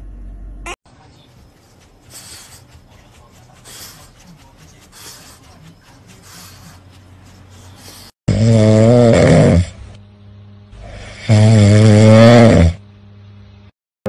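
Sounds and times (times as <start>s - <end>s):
dog snoring: 7.9s - 10.0s, 10.8s - 12.8s.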